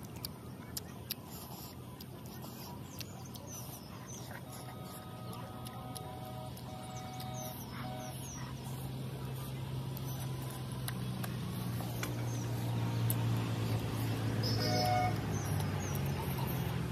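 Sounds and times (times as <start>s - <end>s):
engine humming: 0.0s - 16.9s
faint bird chirps: 2.4s - 10.6s.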